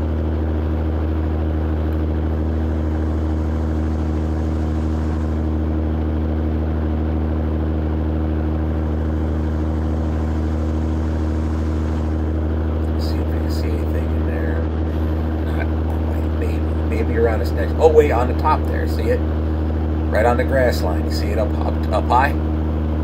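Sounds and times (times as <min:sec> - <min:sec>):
truck diesel engine drone: 0:00.0 - 0:23.0.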